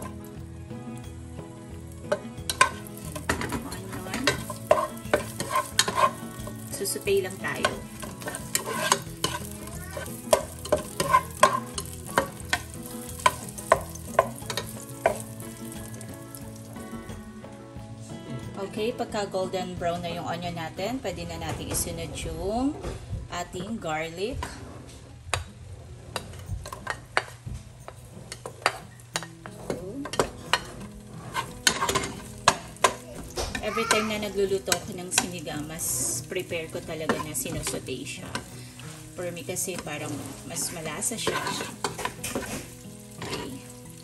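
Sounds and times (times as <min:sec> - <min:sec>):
onions sizzling in oil: 0:00.0 - 0:17.4, 0:26.6 - 0:44.0
plastic spoon scraping a pot: 0:04.1 - 0:06.3, 0:07.6 - 0:10.1, 0:29.5 - 0:32.2, 0:41.2 - 0:42.7.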